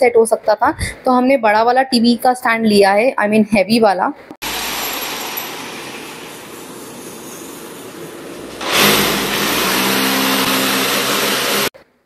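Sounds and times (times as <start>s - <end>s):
electric drill boring into wall: 8.5s - 11.8s.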